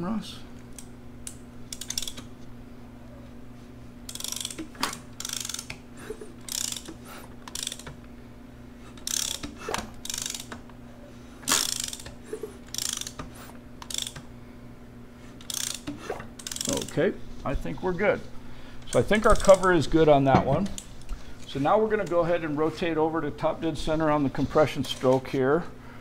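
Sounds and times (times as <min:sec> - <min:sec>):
wrench clicking: 0:00.8 - 0:02.3, 0:04.1 - 0:05.8, 0:06.4 - 0:08.0, 0:09.0 - 0:10.7, 0:11.5 - 0:14.3, 0:15.4 - 0:16.9.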